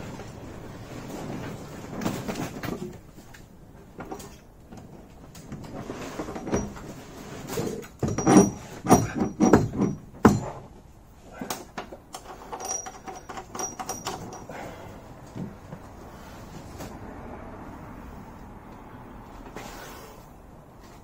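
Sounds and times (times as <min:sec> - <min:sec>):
metal gearbox clunking and scraping: 0:05.6 - 0:10.8, 0:12.2 - 0:14.5.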